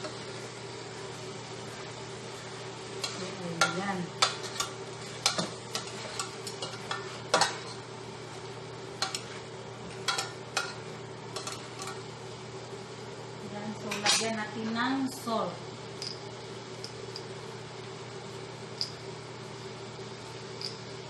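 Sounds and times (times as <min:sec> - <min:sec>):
chicken sizzling: 0:00.0 - 0:21.0
steady low hum: 0:00.0 - 0:21.0
metal tongs clinking on pot: 0:03.0 - 0:07.8, 0:09.0 - 0:09.3, 0:10.0 - 0:10.8, 0:11.4 - 0:12.0, 0:13.9 - 0:14.3.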